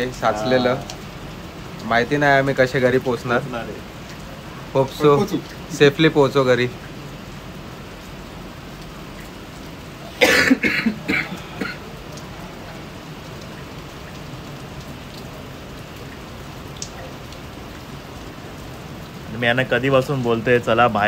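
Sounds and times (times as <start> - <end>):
heavy rain pouring: 0.0 - 21.0
person coughing: 10.2 - 11.8.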